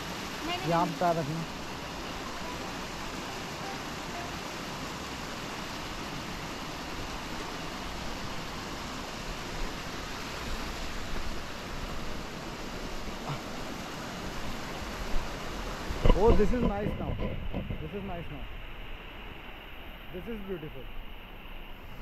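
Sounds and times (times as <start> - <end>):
stream rushing over rocks: 0.0 - 22.0.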